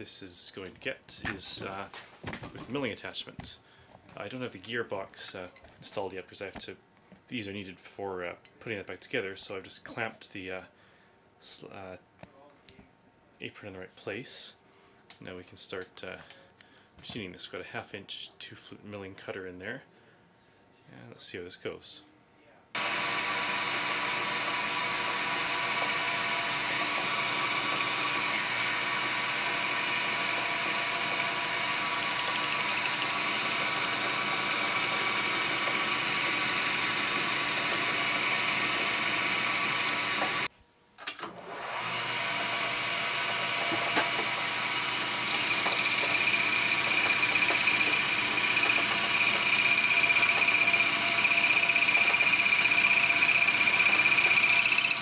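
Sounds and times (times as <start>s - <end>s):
cutter milling metal: 22.8s - 40.5s, 41.7s - 55.0s
lathe machine whine: 22.8s - 40.5s, 41.6s - 55.0s.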